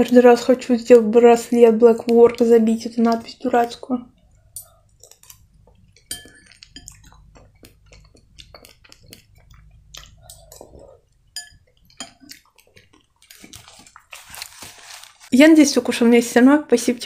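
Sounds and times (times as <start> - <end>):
chewing: 1.9 - 15.2
metal spoon clinking on glass bowl: 4.5 - 5.4, 6.0 - 7.6, 11.3 - 12.4.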